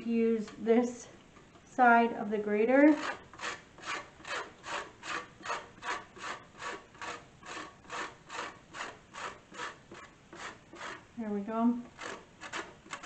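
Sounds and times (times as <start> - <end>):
grater rasping: 2.9 - 11.1, 11.8 - 13.0.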